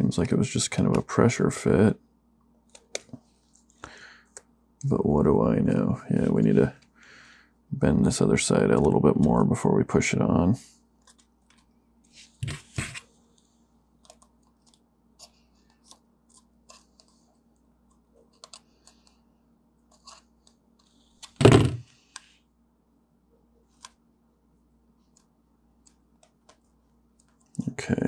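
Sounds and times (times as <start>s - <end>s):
thump: 21.4s - 21.8s.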